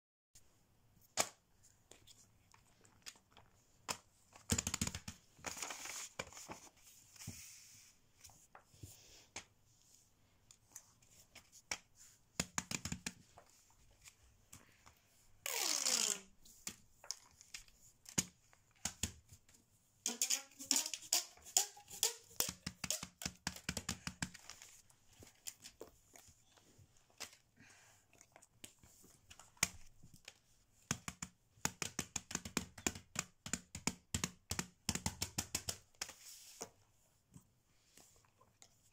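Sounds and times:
handling silicone toys on paper: 0:01.0 - 0:27.6
toy squeaks: 0:20.1 - 0:23.0.

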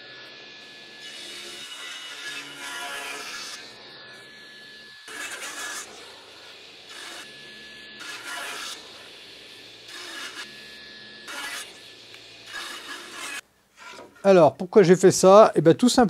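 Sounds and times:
wood strip scraping on saw table: 0:11.3 - 0:11.8, 0:12.4 - 0:14.3.

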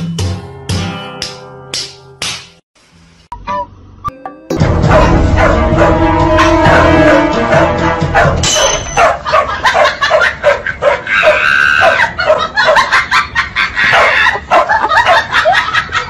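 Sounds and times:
dogs barking: 0:04.7 - 0:07.3, 0:08.0 - 0:16.0.

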